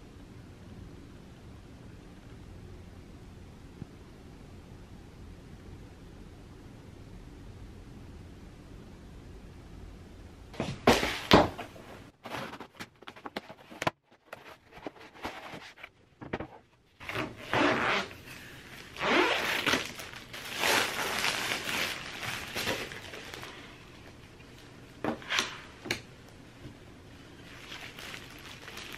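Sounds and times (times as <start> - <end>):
plastic wrap rustling: 12.2 - 25.7, 27.3 - 28.9.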